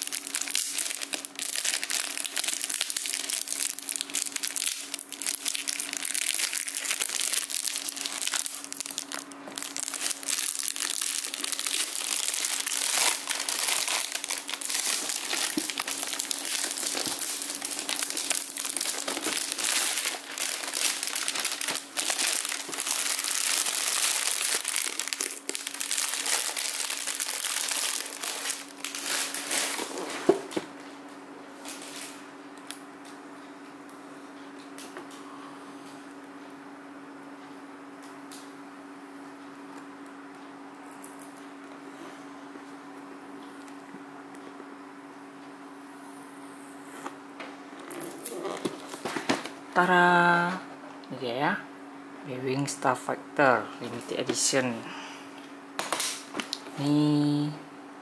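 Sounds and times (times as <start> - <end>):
plastic shrink-wrap crinkling: 0.0 - 30.6, 31.6 - 32.2.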